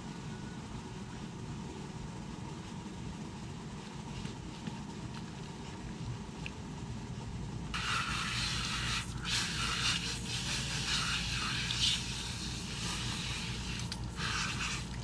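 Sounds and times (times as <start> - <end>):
garden hose spraying water: 7.8 - 15.0.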